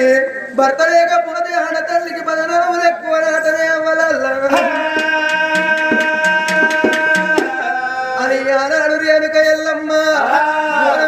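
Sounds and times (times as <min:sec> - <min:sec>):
hand drum strokes: 0:04.5 - 0:07.8.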